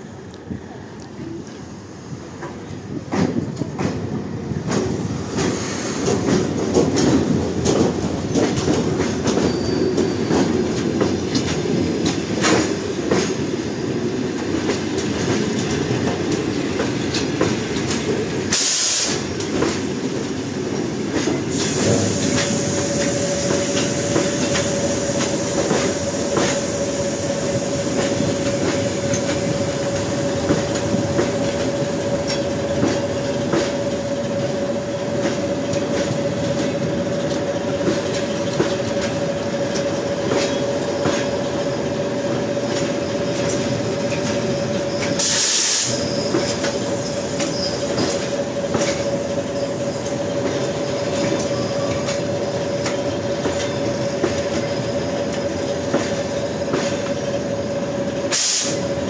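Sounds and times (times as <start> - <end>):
train wheels clicking over rail joints: 2.3 - 59.0
train brakes squealing: 5.1 - 13.5, 17.1 - 19.5, 20.8 - 59.0.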